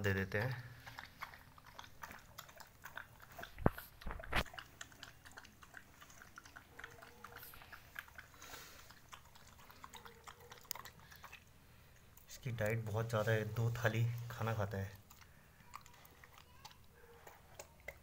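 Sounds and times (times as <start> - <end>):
dog chewing and crunching: 0.0 - 18.0.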